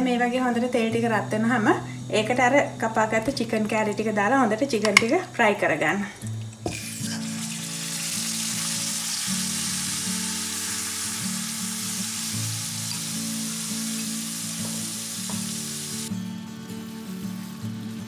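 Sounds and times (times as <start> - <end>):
quiet background music: 0.0 - 18.0
chicken sizzling in hot oil: 6.4 - 16.1, 16.8 - 18.0.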